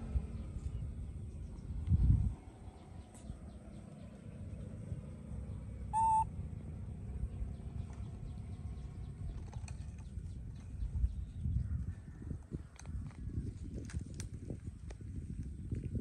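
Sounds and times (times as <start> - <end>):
low steady rumble: 0.0 - 16.0
short animal call: 6.0 - 6.2.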